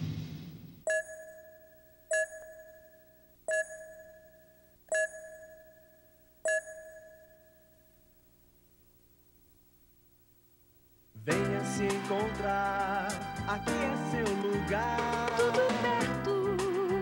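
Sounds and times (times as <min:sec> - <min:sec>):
electronic countdown beeps: 0:00.8 - 0:07.8.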